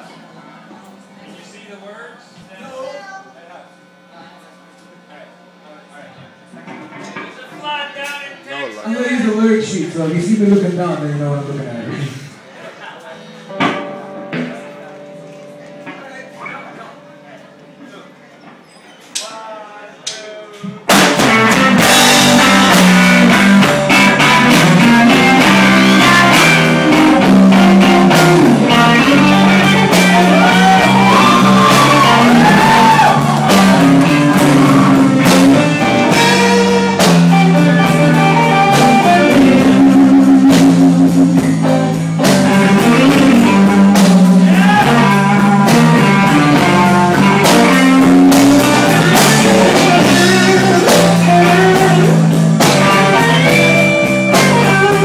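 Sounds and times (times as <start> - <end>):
drums: 6.2 - 19.5, 20.1 - 55.0
bass: 8.4 - 12.5, 20.1 - 55.0
electric guitar lead: 13.2 - 17.8, 20.9 - 55.0.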